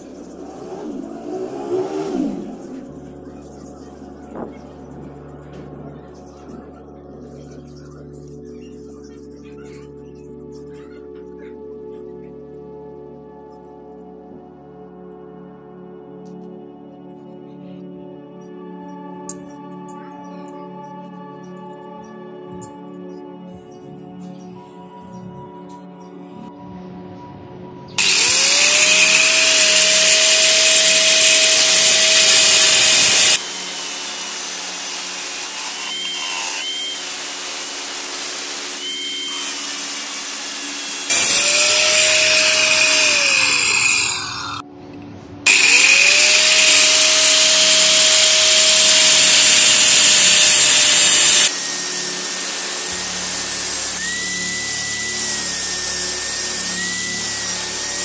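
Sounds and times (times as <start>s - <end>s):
angle grinder cutting steel: 28.0s - 44.6s, 45.5s - 58.0s.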